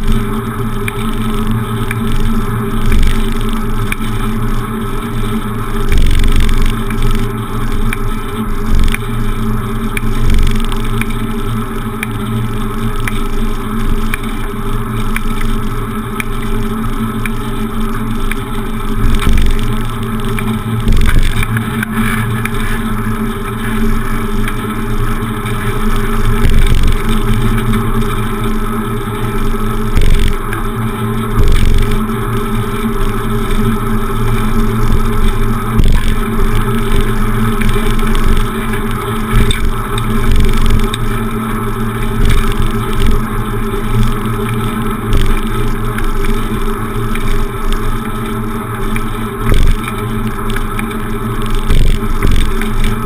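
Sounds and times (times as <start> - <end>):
constant drone: 0.0 - 53.0
road rumble: 0.0 - 53.0
wind: 0.0 - 53.0
low thumps from road bumps: 20.8 - 21.7.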